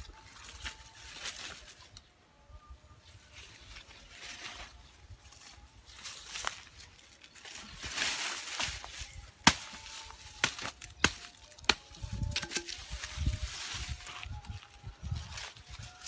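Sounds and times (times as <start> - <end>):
rustling of dry leaves: 0.0 - 2.1, 3.0 - 16.0
machete chopping: 9.4 - 12.8.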